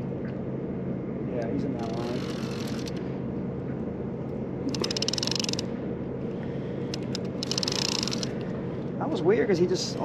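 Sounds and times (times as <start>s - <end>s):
fishing reel clicking rapidly: 1.9s - 3.0s, 4.7s - 5.7s, 7.0s - 8.4s.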